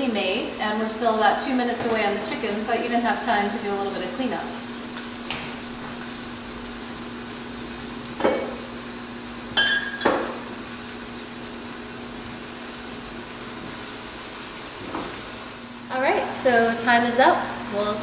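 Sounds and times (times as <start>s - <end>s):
meat sizzling in a grill: 0.0s - 18.0s
glass clink: 9.6s - 10.4s.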